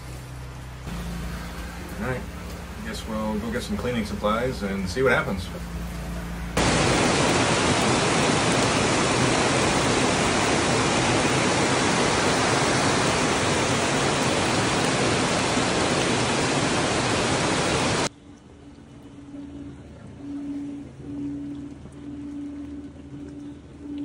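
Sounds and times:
heavy rain on pavement: 6.6 - 18.1.

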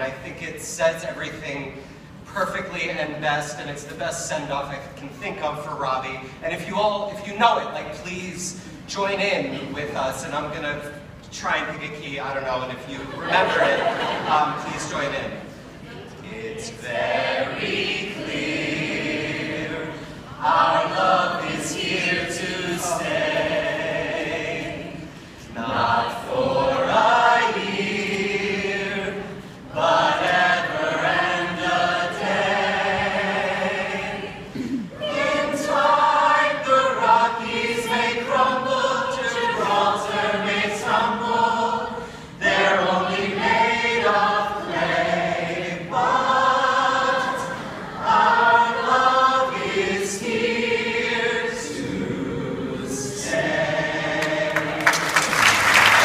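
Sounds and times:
group singing unaccompanied: 13.0 - 56.0.

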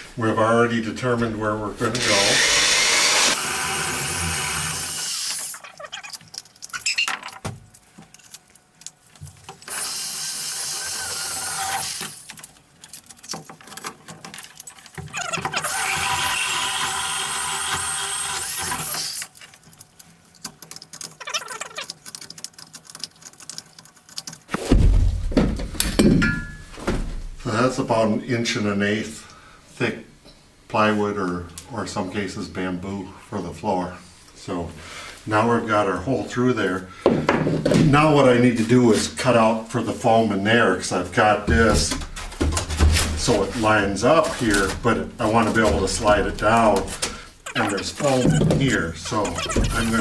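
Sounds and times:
drill with hole saw squealing: 2.0 - 5.6, 9.7 - 12.2, 15.2 - 19.3
crackling: 18.8 - 25.3.

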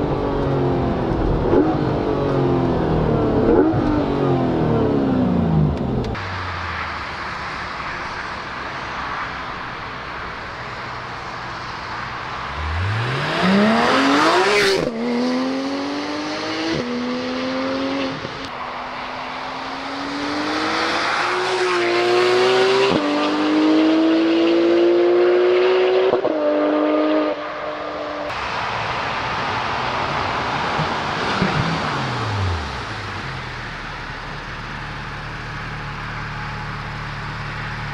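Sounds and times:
car engine accelerating through gears: 0.0 - 6.9, 12.4 - 18.6, 19.4 - 28.4
steady rushing noise: 28.2 - 34.0.

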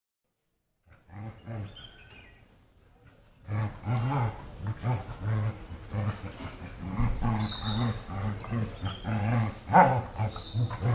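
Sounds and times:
dogs growling: 0.9 - 2.3, 3.0 - 10.9
dog whining: 3.7 - 10.9.

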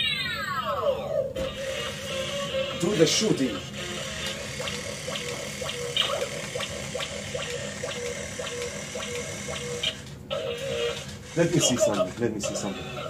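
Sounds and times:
toy motor and gears whirring: 1.4 - 13.0
regular ticking: 4.2 - 10.1.

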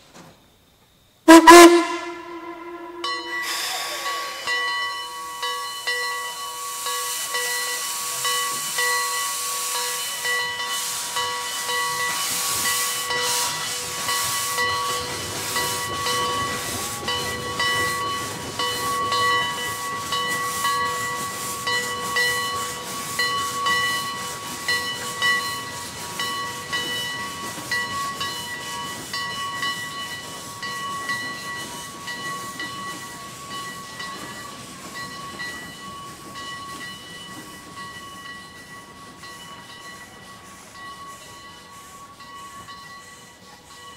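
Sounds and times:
steam locomotive exhaust chuffs: 1.2 - 43.9
steady whistle-like tone: 1.3 - 28.8
steam hissing from cylinder cocks: 2.3 - 43.9.

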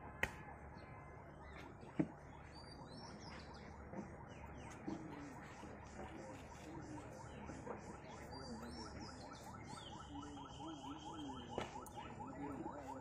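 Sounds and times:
faint outdoor background: 0.0 - 13.0.

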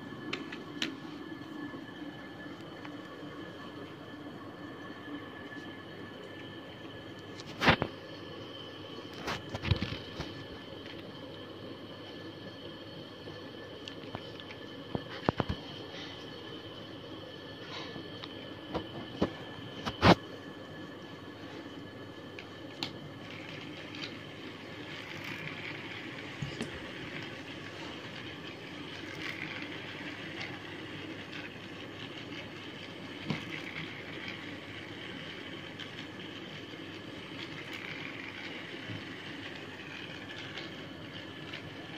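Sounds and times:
toy train motor whir: 22.3 - 41.9.

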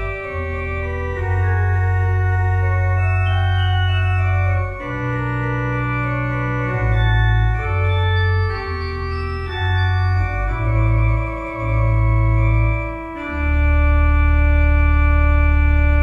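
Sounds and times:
organ playing held chords: 0.0 - 16.0.

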